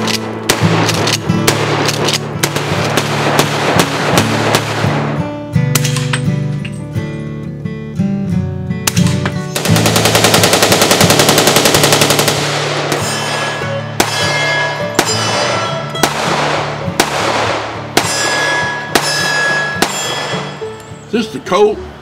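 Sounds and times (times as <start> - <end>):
pistol shots ringing: 0.0 - 6.4, 8.8 - 21.2
background music: 0.0 - 22.0
rapid gunfire: 0.5 - 5.2, 8.9 - 14.4, 15.0 - 20.5.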